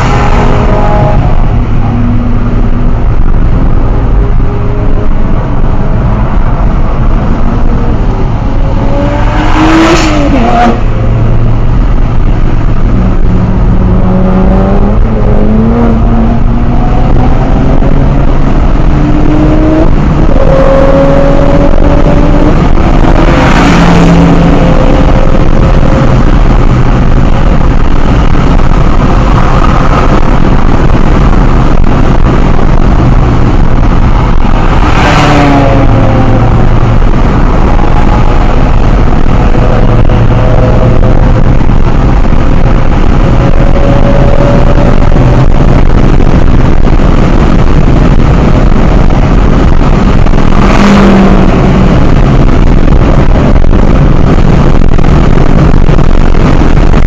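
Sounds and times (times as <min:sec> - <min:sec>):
car engine revving: 0:00.0 - 0:57.0
loud rushes of noise: 0:00.0 - 0:57.0
road and tyre noise: 0:00.0 - 0:57.0.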